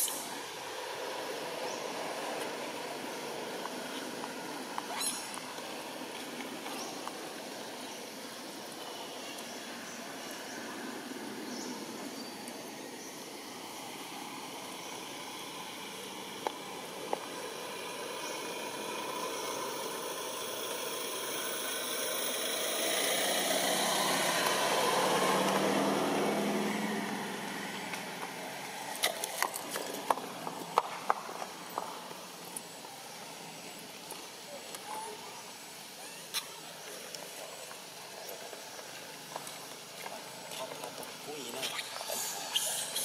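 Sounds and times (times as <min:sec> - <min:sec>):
outdoor background noise: 0:00.0 - 0:43.0
motor vehicle passing: 0:13.7 - 0:32.4.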